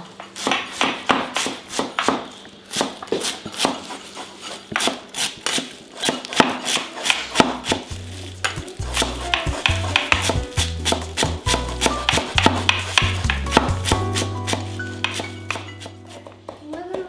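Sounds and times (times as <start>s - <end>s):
knife chopping on wooden board: 0.4s - 4.0s, 4.7s - 17.0s
background music with low bass: 7.5s - 16.5s.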